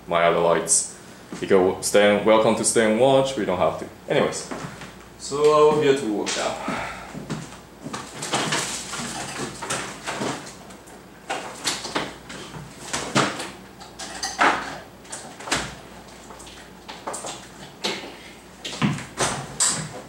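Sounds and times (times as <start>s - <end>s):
knocks and clunks of objects: 7.1s - 10.7s, 11.3s - 15.8s, 16.4s - 20.0s.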